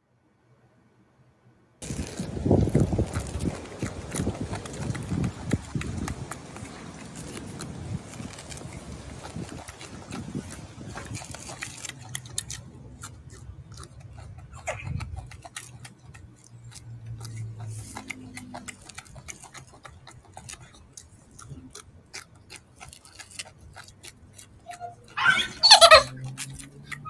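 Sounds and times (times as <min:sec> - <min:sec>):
monkey eating with soft clicks: 0:01.8 - 0:27.0
monkey squeaky call: 0:24.6 - 0:26.3.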